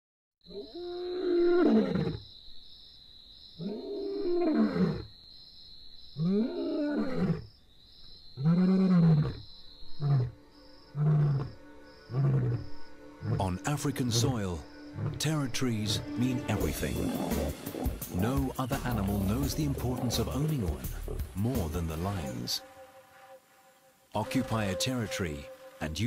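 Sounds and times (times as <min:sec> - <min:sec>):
lion roaring: 0:11.0 - 0:13.6, 0:15.0 - 0:15.2, 0:16.6 - 0:21.4.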